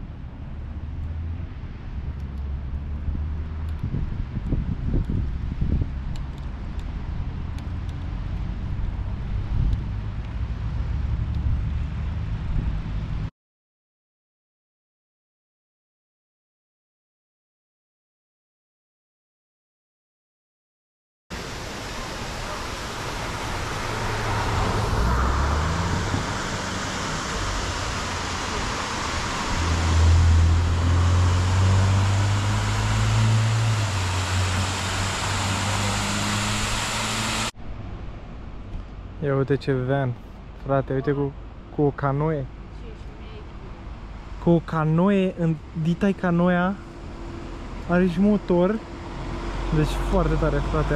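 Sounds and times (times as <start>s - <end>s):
road traffic rumble: 0.0s - 13.3s, 21.3s - 50.9s
wind on microphone: 2.8s - 7.6s, 23.3s - 37.8s
vehicle engine humming: 21.4s - 50.9s.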